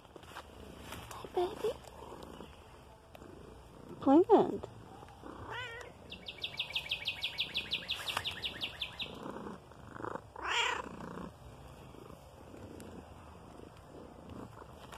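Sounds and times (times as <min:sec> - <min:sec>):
cat purring: 0:00.5 - 0:06.2, 0:08.4 - 0:14.9
bird trilling: 0:05.5 - 0:09.2.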